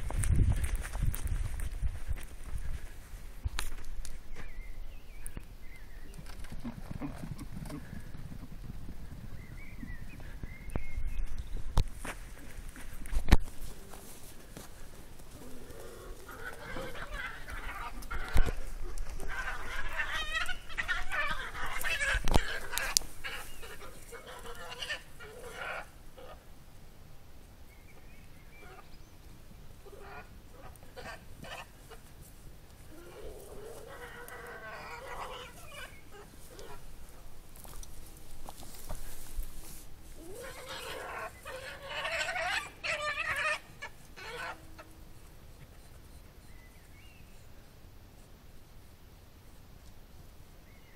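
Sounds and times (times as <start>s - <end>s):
badgers screaming and squealing: 15.3s - 26.4s, 32.9s - 37.0s, 40.2s - 45.0s.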